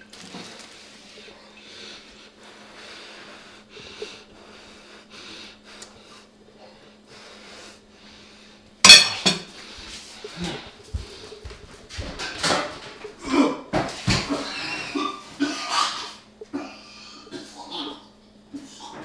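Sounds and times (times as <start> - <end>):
man breathing hard: 1.0 - 8.8, 9.5 - 11.6
man retching and gagging: 13.0 - 19.0.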